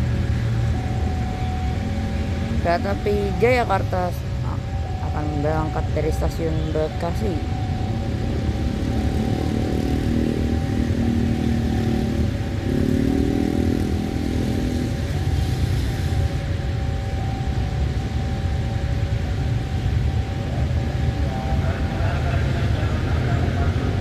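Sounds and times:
low engine rumble: 13.4s - 24.0s.

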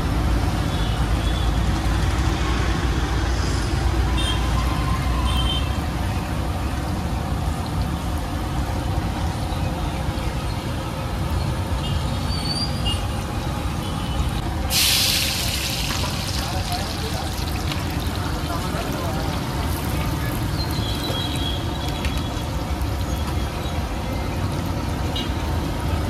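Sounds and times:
road traffic rumble: 0.0s - 26.0s.

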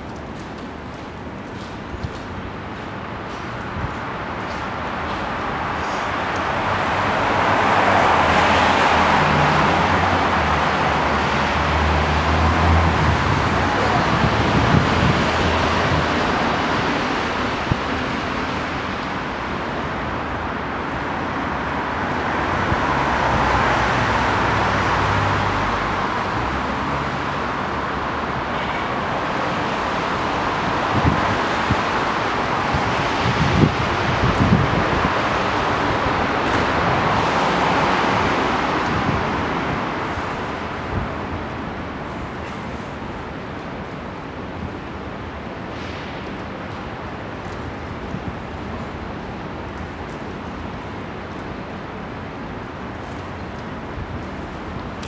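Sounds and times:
road vehicle rushing hiss: 5.5s - 19.3s, 29.2s - 43.5s.

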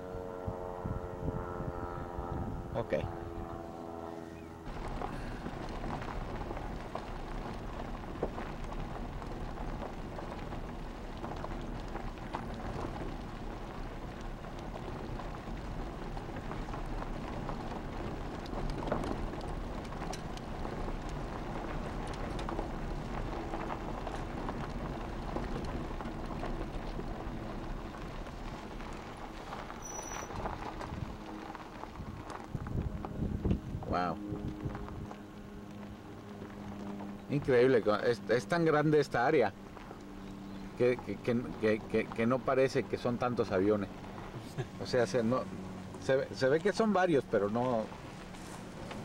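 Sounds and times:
vehicle engine and tyres rumbling: 0.0s - 49.0s
crackling hiss: 4.7s - 33.6s.

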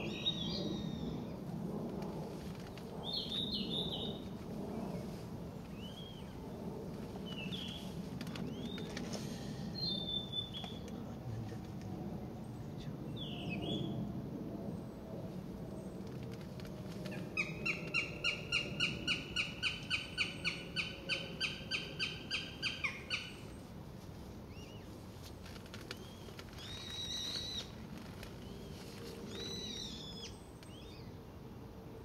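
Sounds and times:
short high bird calls: 26.0s - 27.7s.

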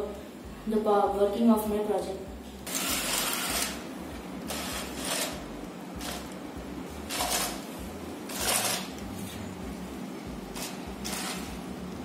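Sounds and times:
small motors whirring: 2.7s - 3.8s, 4.5s - 5.4s.

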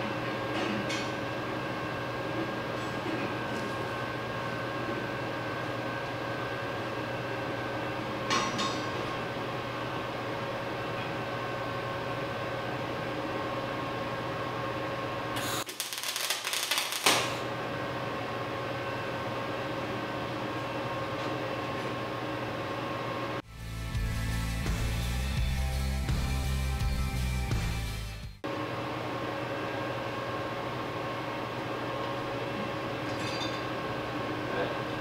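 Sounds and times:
steady machine hum: 0.0s - 35.0s
arc weld crackling: 15.4s - 17.6s.

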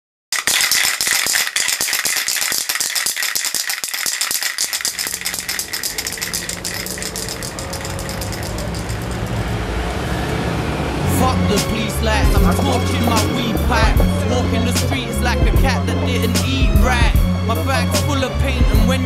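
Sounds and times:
spray can rattling: 0.3s - 9.4s
low rumble of street traffic: 4.7s - 19.0s.

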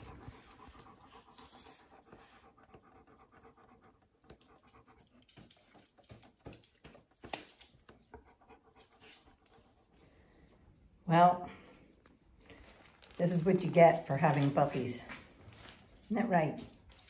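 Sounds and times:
dog panting: 0.0s - 10.2s.

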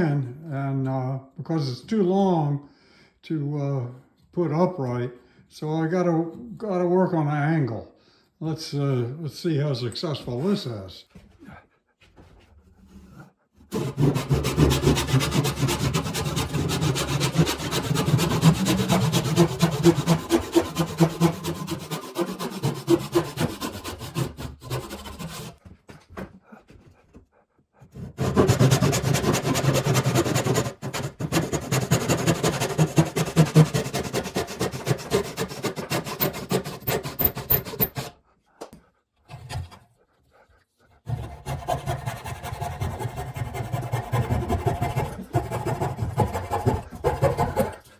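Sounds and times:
hand saw rasping through wood: 12.8s - 25.7s, 26.4s - 38.4s, 39.2s - 47.9s
coping saw cutting: 13.0s - 25.6s, 27.8s - 38.2s, 41.0s - 47.9s.

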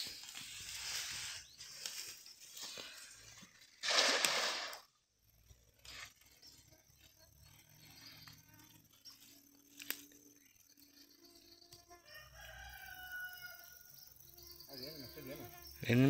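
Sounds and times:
faint splash: 3.8s - 4.9s
net splashing into water: 3.8s - 4.9s.

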